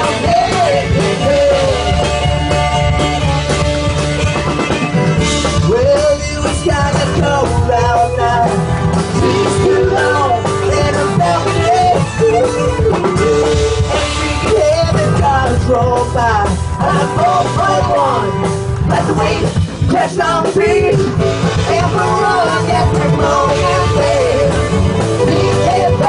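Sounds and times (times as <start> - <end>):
fiddle: 0.0 - 14.8
drums: 0.0 - 26.0
guitar: 0.0 - 26.0.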